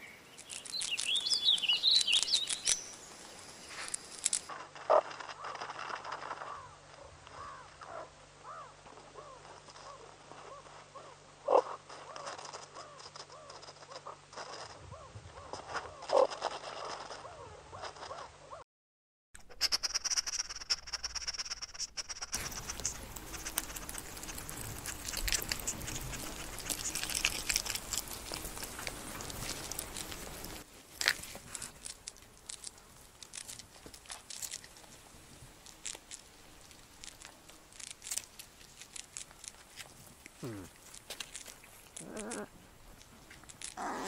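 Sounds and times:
hedgehog crunching in grass: 0:00.3 - 0:08.0, 0:08.9 - 0:18.3, 0:19.8 - 0:44.0
squirrel nibbling clicks: 0:00.4 - 0:03.0, 0:03.7 - 0:04.5, 0:19.8 - 0:43.9.

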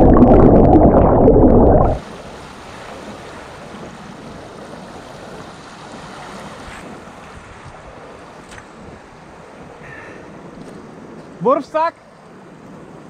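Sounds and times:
underwater bubbling: 0:00.0 - 0:02.1
underwater rush of water: 0:00.0 - 0:09.6.

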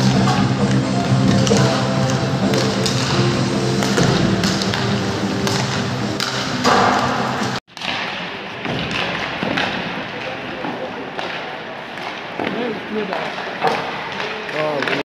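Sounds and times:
music over arena speakers: 0:00.0 - 0:07.6
pucks and sticks knocking: 0:00.0 - 0:15.0
rink crowd hubbub: 0:00.0 - 0:15.0.

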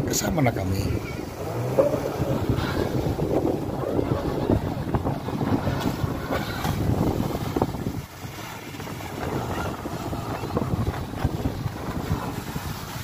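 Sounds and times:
jet ski running: 0:00.0 - 0:13.0
wind buffeting microphone: 0:00.0 - 0:13.0.

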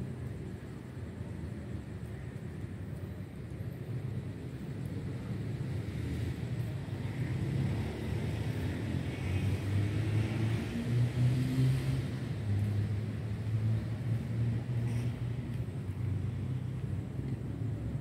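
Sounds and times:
road traffic rumble: 0:00.0 - 0:18.0
vehicle passing: 0:07.0 - 0:16.8.

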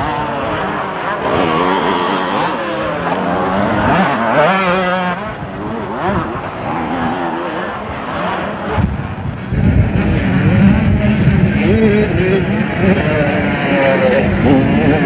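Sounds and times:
deeper louder engine: 0:00.0 - 0:15.0
motocross bike engines revving: 0:00.0 - 0:15.0.

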